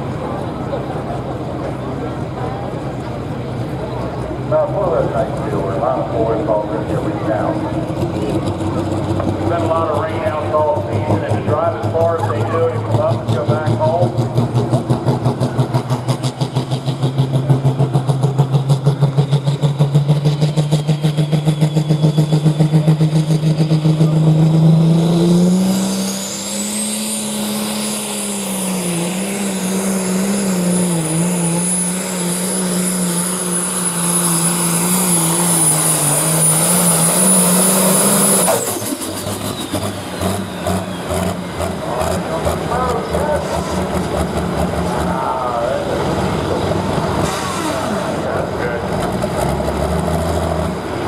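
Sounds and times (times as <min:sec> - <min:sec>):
tractor engine under load: 0:00.0 - 0:51.0
turbo whistle: 0:20.9 - 0:23.2.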